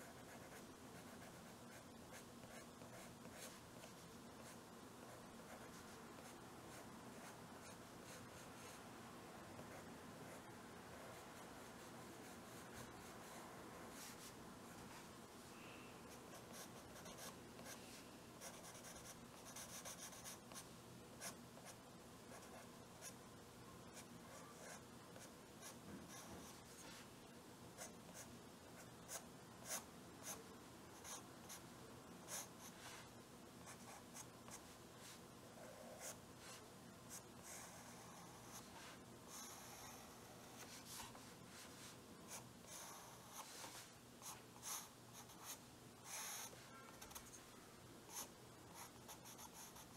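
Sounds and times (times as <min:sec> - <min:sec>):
pencil scratching on paper: 0:00.0 - 0:08.8, 0:18.4 - 0:20.6, 0:48.1 - 0:49.9.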